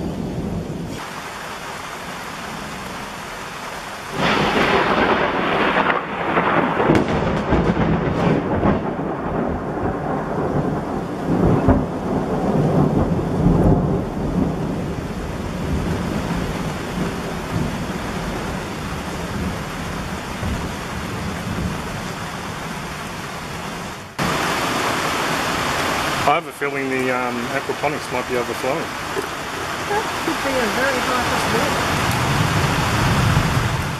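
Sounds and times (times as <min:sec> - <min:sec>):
heavy rain: 0:00.0 - 0:33.9
pouring rain rush: 0:00.0 - 0:33.9
thunder rumbling: 0:00.0 - 0:33.9.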